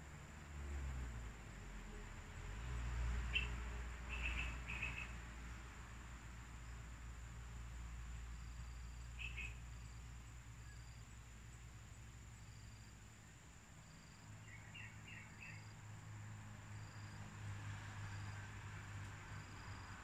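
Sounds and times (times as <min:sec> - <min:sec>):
insect chirps: 0:00.0 - 0:20.0
insect buzz: 0:01.8 - 0:20.0.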